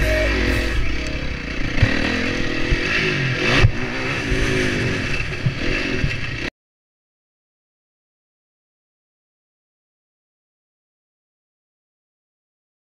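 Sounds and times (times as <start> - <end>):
motocross bike engine revving: 0.0 - 6.5.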